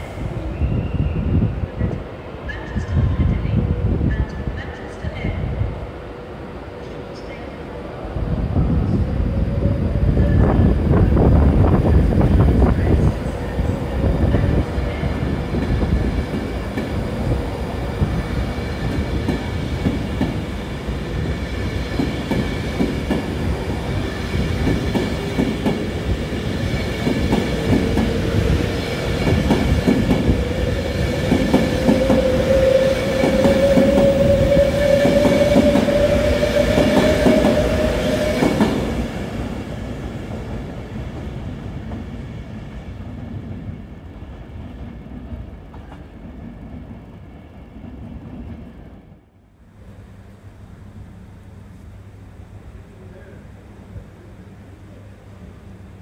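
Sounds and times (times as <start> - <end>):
train wheels clicking on rails: 15.4 - 17.4, 18.0 - 39.1.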